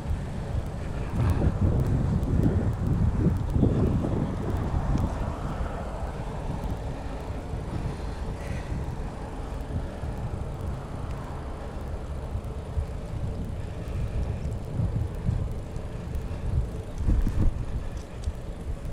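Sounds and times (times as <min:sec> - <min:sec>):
bicycle tyre rumble: 0:00.0 - 0:18.9
wind buffeting microphone: 0:00.0 - 0:18.9.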